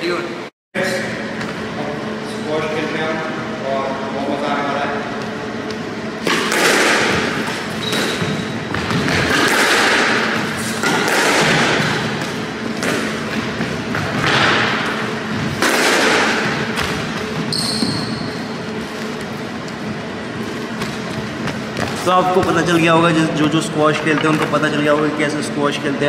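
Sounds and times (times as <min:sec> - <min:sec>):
squash ball hits: 0:06.2 - 0:18.0, 0:20.7 - 0:22.8
short high squeak: 0:17.5 - 0:18.4.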